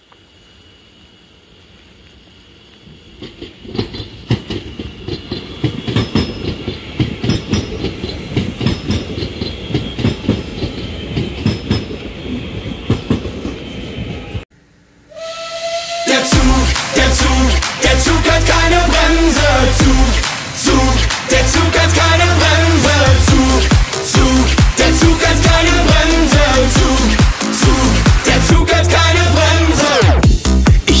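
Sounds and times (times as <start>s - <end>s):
high train whine: 0.0s - 31.0s
train wheels clattering over rails: 2.8s - 13.8s
pop music: 16.0s - 31.0s.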